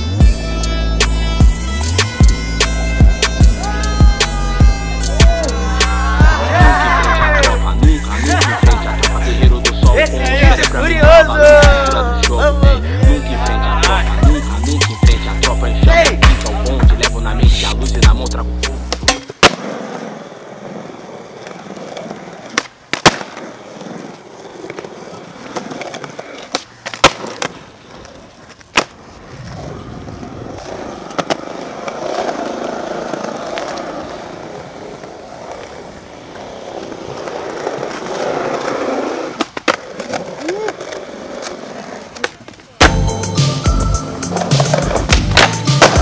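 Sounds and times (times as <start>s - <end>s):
skateboard wheels rolling on pavement: 0.0s - 46.0s
skateboard popping and landing: 15.9s - 17.2s, 18.1s - 43.1s, 44.3s - 46.0s.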